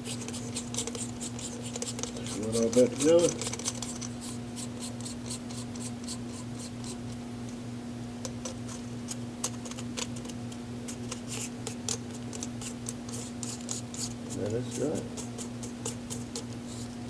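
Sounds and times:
steady low hum: 0.0s - 17.0s
metal parts scraping and clicking: 1.8s - 4.2s.

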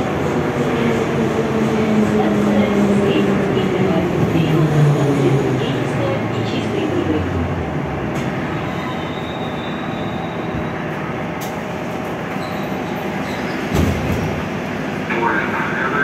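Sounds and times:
train wheels rumbling on rails: 0.0s - 15.4s
high wheel squeal: 8.5s - 10.8s.

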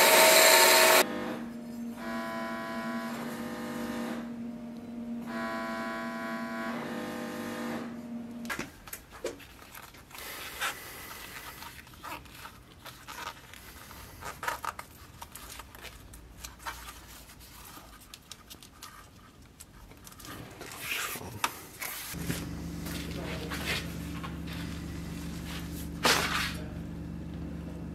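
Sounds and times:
buzzing hum: 0.0s - 8.7s, 22.2s - 27.9s
hands handling leather straps: 8.5s - 23.8s.

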